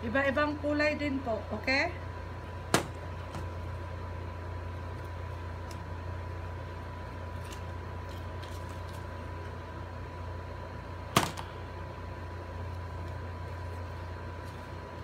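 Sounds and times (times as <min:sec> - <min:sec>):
low room hum: 0:00.0 - 0:15.0
paper being handled: 0:07.4 - 0:09.2.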